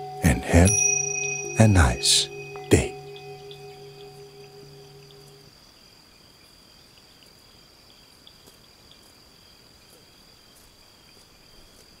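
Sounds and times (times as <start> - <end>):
insect high trill: 0.0 - 5.6
insect short chirps: 0.0 - 11.8
faint ticks: 6.9 - 12.0.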